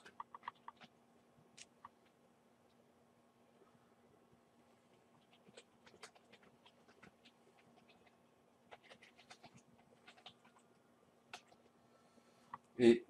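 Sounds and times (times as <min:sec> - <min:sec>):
computer keyboard and mouse clicks: 0:00.0 - 0:00.9, 0:05.2 - 0:08.1, 0:08.7 - 0:10.6, 0:11.3 - 0:11.6
low steady hum: 0:00.0 - 0:13.0.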